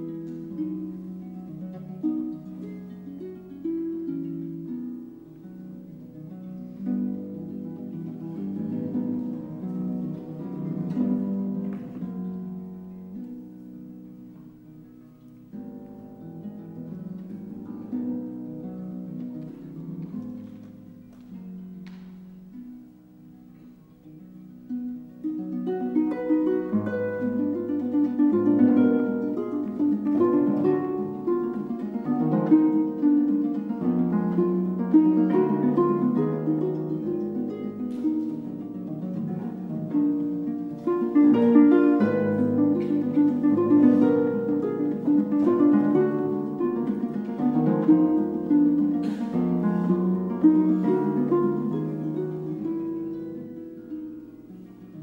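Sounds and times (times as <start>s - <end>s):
harp playing solo: 0.0s - 55.0s.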